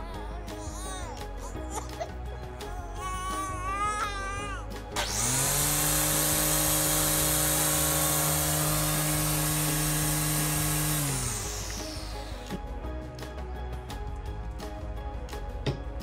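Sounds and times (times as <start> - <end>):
motor running with hiss: 5.0 - 12.6.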